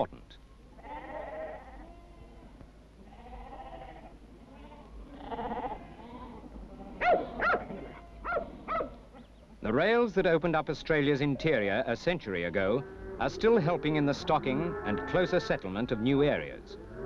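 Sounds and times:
sheep bleating: 0.8s - 9.1s, 12.6s - 17.0s
dog barking: 7.0s - 9.0s.

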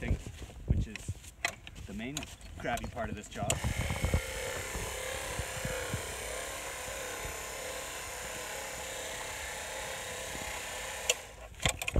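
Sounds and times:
electric auger motor running: 3.5s - 11.9s.

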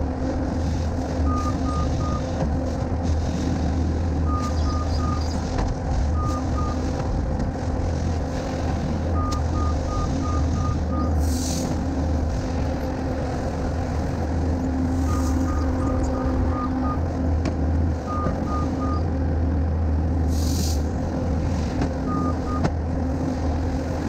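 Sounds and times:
diesel engine running: 0.0s - 24.0s
backup alarm beeping: 1.2s - 2.3s, 4.2s - 5.3s, 6.1s - 6.9s, 9.1s - 11.2s, 15.0s - 17.1s, 18.0s - 19.0s, 22.0s - 22.6s.

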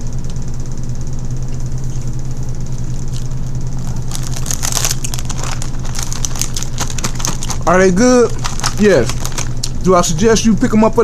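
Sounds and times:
low hum: 0.0s - 10.7s
crackly clicks and crinkling: 2.9s - 9.8s.

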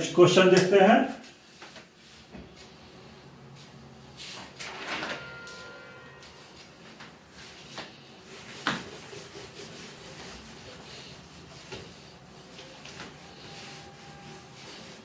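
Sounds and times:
duster rubbing on whiteboard: 6.4s - 15.0s.

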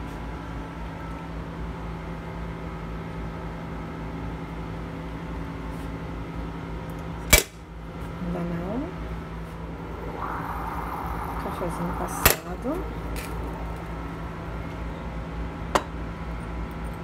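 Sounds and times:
steady low hum: 7.7s - 17.0s
faint gurgling chirps: 9.6s - 15.3s
moka pot sputtering hiss: 9.9s - 15.3s.

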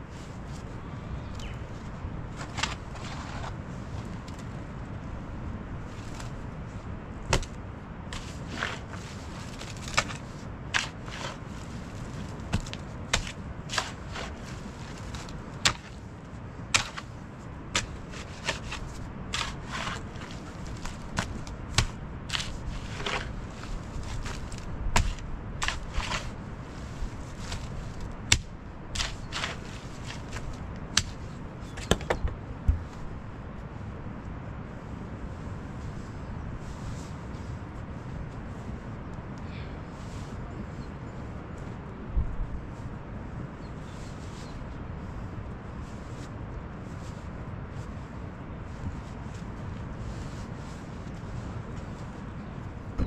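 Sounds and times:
low background rumble: 0.0s - 53.0s.

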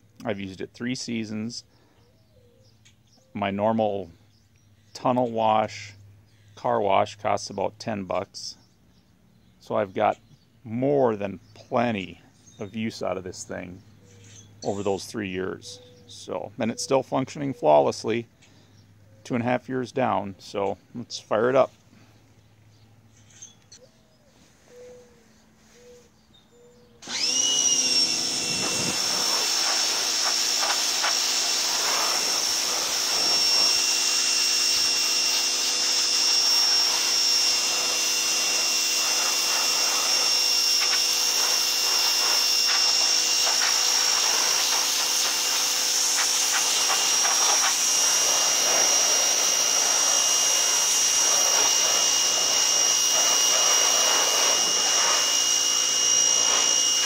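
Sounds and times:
pressure washer whining: 27.0s - 57.0s
water jet hissing: 28.3s - 36.1s, 36.8s - 57.0s.

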